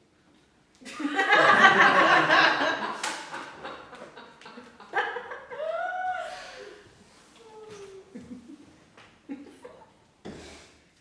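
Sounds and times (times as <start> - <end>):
small audience laughing: 0.8 - 6.3.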